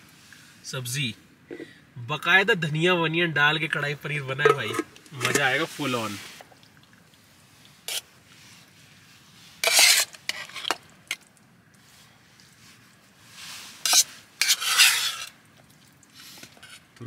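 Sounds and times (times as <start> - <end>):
metal spoon scraping a pot: 4.4 - 5.6, 9.6 - 10.8, 13.7 - 15.4, 16.2 - 16.9.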